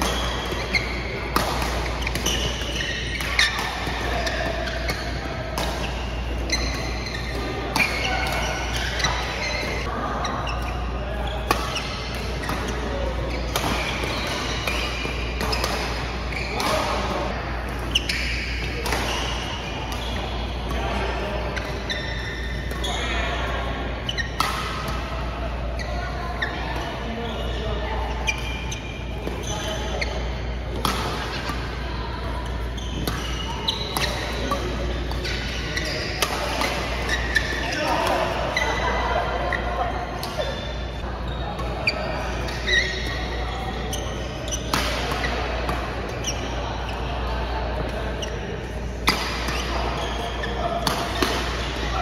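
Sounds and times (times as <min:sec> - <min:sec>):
racket hitting shuttlecock: 0:00.0 - 0:09.9, 0:11.3 - 0:20.8, 0:24.0 - 0:25.2, 0:30.7 - 0:38.6, 0:42.4 - 0:46.4, 0:49.0 - 0:51.9
shoes squeaking on court floor: 0:00.0 - 0:52.0
racket striking shuttlecock: 0:33.0 - 0:38.2, 0:50.4 - 0:51.9.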